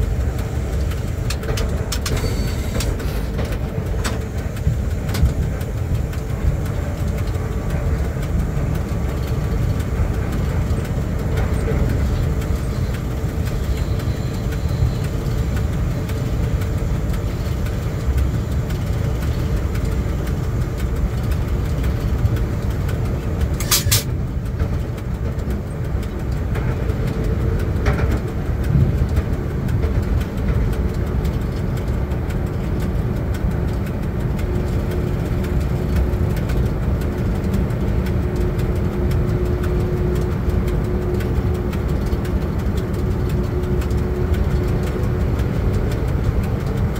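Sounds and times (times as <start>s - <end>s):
locomotive cab rumble: 0.0s - 46.9s
sharp click: 23.6s - 24.1s.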